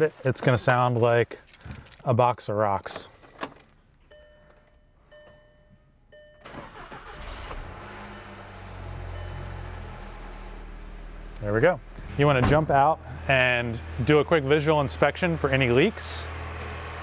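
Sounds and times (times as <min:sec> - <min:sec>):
car engine cranking and idling: 0:00.4 - 0:17.0
short electronic beeps: 0:09.1 - 0:09.8.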